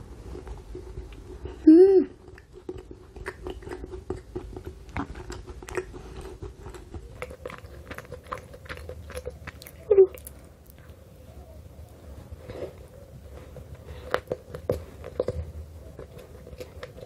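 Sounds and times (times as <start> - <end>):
person humming: 1.6 - 2.2
wet mouth chewing clicks: 2.1 - 11.0
biting into cake: 2.2 - 11.0.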